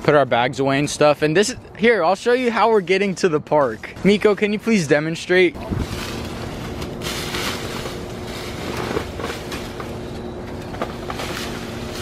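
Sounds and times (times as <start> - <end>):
road traffic passing: 0.0 - 12.0
footsteps on dry leaves: 5.6 - 10.0.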